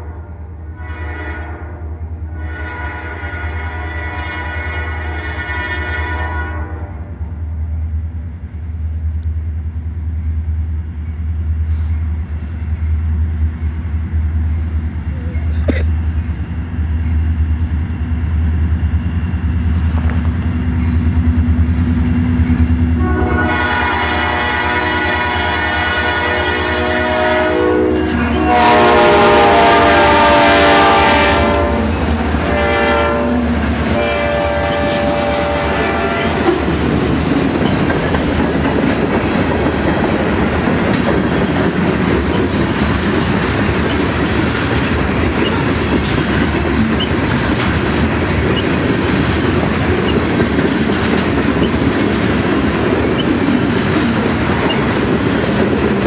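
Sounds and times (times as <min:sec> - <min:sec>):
train horn blasts: 0:00.0 - 0:07.1, 0:22.8 - 0:36.6
freight cars rolling clickety-clack: 0:34.6 - 0:56.0.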